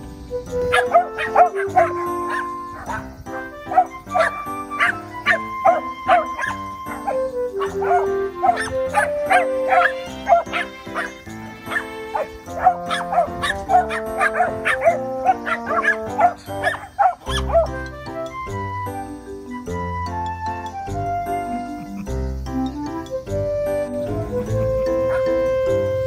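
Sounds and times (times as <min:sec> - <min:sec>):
background music: 0:00.0 - 0:26.0
dog barking: 0:00.7 - 0:17.8, 0:25.1 - 0:25.3.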